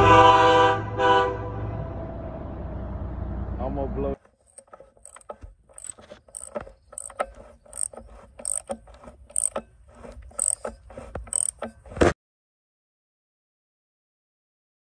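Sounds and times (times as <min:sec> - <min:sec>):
metallic clicking and clanking: 0:04.3 - 0:12.1.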